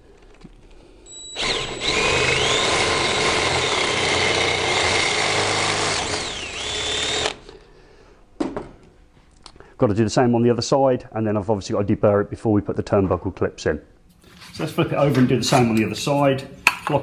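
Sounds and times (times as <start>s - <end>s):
cordless drill boring through metal: 1.1s - 7.4s.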